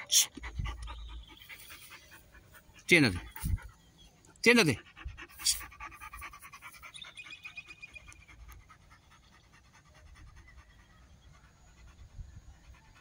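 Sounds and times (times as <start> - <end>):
dog panting: 0.0 - 13.0.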